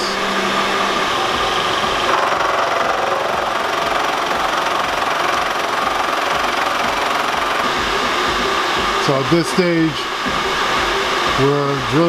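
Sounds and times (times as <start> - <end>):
milling machine cutting metal: 0.0 - 12.0.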